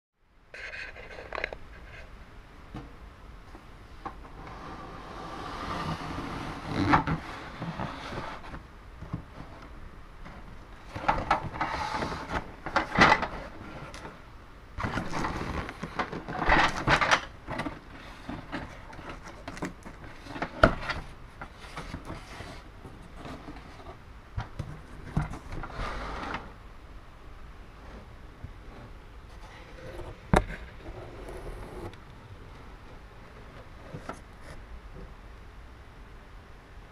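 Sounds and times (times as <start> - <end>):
cardboard rustling and scraping: 4.3 - 14.2, 14.8 - 26.6, 27.8 - 32.0, 33.2 - 34.7.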